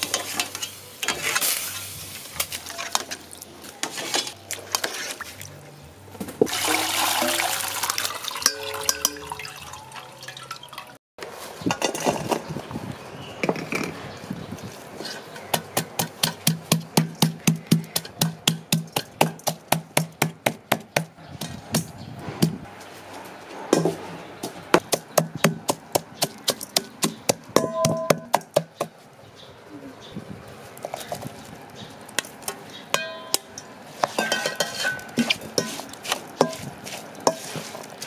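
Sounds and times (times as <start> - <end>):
wooden pestle pounding in metal bowl: 15.5 - 21.1, 24.8 - 28.8.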